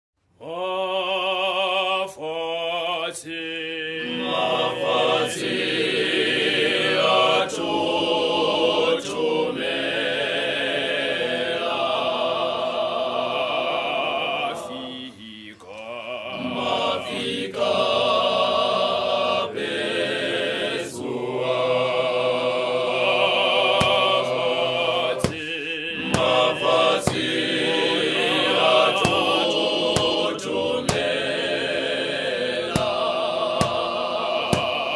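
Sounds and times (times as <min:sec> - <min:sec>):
male voice choir singing: 0:00.4 - 0:34.9.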